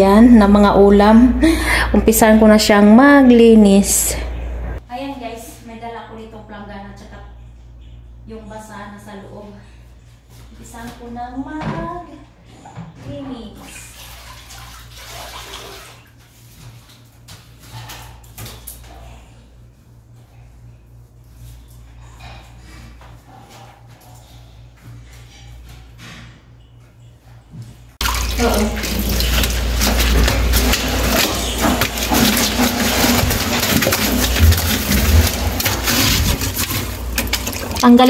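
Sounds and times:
steady low hum: 0:00.0 - 0:11.4, 0:17.4 - 0:38.0
water sloshing in plastic basin: 0:13.7 - 0:17.1, 0:28.0 - 0:38.0
cloth wiping inside freezer: 0:28.4 - 0:37.2.

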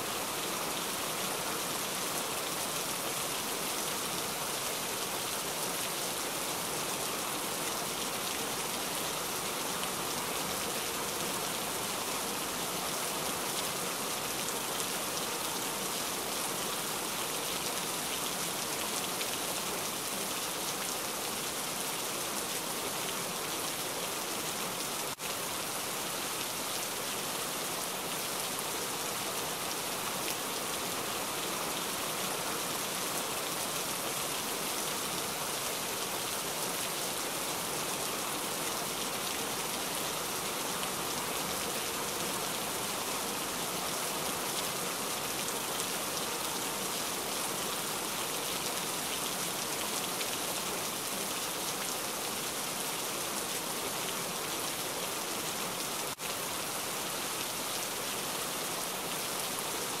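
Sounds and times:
rain falling on a tent: 0:00.0 - 1:00.0.

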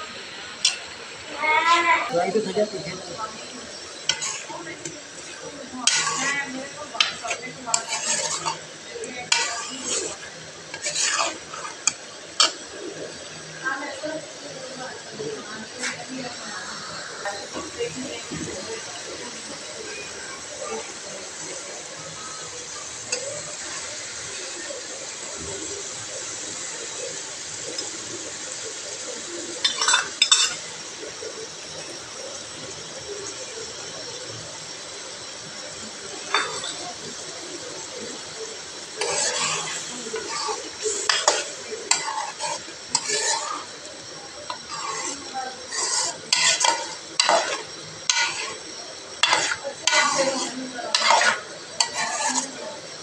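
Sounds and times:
curry sizzling in a pot: 0:00.0 - 0:53.0
metal spoon scraping a pot: 0:03.7 - 0:12.8, 0:29.6 - 0:30.6, 0:36.3 - 0:36.9, 0:38.9 - 0:52.8.

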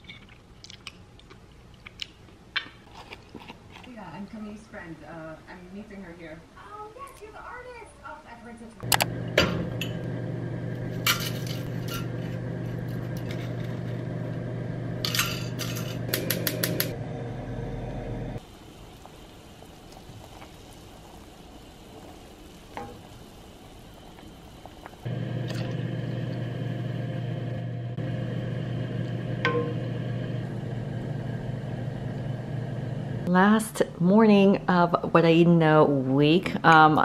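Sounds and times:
steady low hum: 0:08.8 - 0:35.1
utensils clinking against pot: 0:15.0 - 0:17.0.

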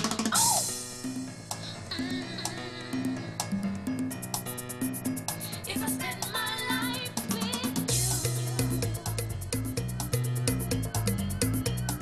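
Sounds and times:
sharp percussion hits: 0:00.0 - 0:01.5
bass line: 0:00.3 - 0:00.8, 0:07.9 - 0:12.0.

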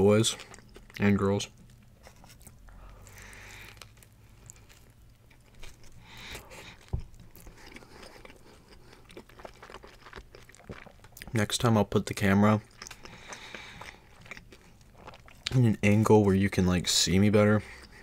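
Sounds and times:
chewing sandwich: 0:00.1 - 0:18.0.

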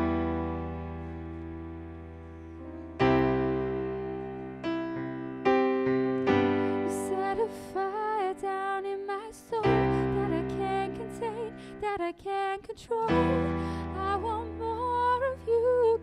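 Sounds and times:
electric keyboard piano chords: 0:00.0 - 0:11.7
woman singing slow melody: 0:06.7 - 0:16.0.

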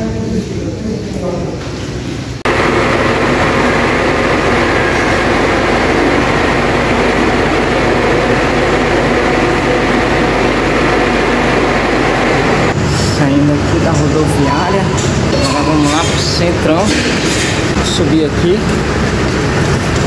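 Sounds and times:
diesel bus engine running: 0:02.4 - 0:14.2.

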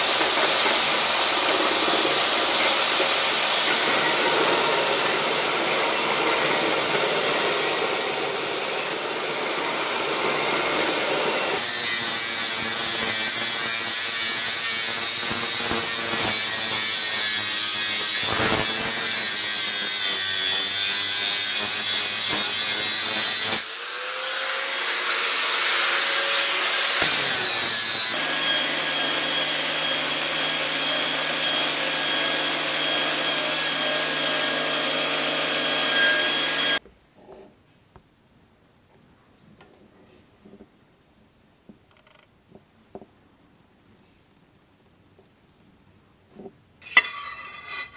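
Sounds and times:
angle grinder grinding blade: 0:00.0 - 0:36.8
belt grinder rasping on steel: 0:00.0 - 0:36.8, 0:46.8 - 0:47.9.

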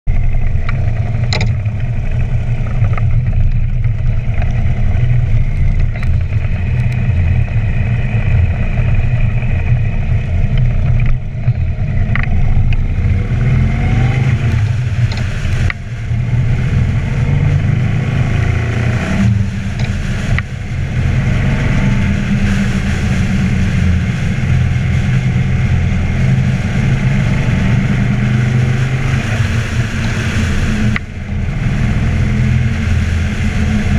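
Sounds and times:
motorcycle exhaust rumble: 0:00.0 - 0:33.9.

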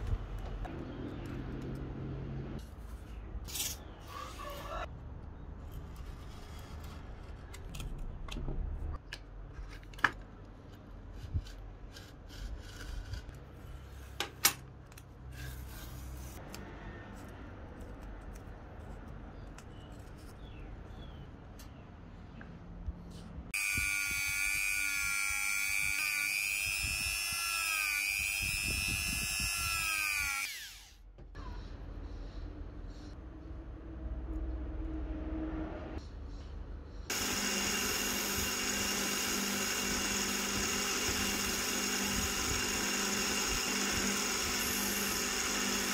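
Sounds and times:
knife and paper scraping: 0:15.2 - 0:16.5
high-speed power tool whine: 0:23.6 - 0:31.0, 0:37.1 - 0:45.9.

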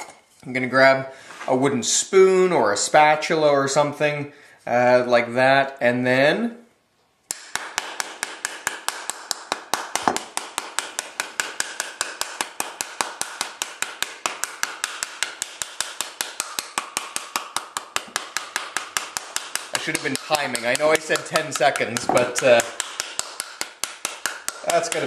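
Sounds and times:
wooden spoon smacking pomegranate: 0:18.0 - 0:23.0.

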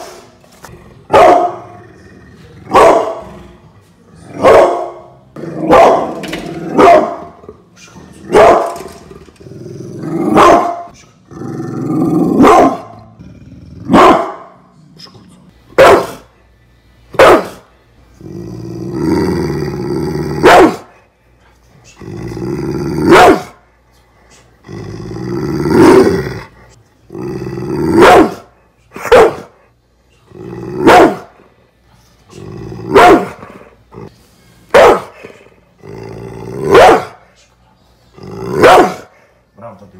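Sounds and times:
dogs barking loudly: 0:01.0 - 0:01.8, 0:02.6 - 0:03.4, 0:04.3 - 0:07.4, 0:08.2 - 0:09.0, 0:10.0 - 0:11.0, 0:12.2 - 0:13.0, 0:13.8 - 0:14.7, 0:15.8 - 0:16.3, 0:17.1 - 0:17.7, 0:20.4 - 0:21.0, 0:23.0 - 0:23.6, 0:27.9 - 0:29.6, 0:30.8 - 0:31.4, 0:32.8 - 0:33.7, 0:34.7 - 0:35.4, 0:36.5 - 0:37.2, 0:38.4 - 0:39.2
dog growling low: 0:09.2 - 0:14.0, 0:18.1 - 0:20.4, 0:21.9 - 0:23.1, 0:24.6 - 0:28.0, 0:30.2 - 0:30.9, 0:32.3 - 0:34.2, 0:35.2 - 0:36.8, 0:38.1 - 0:38.6.

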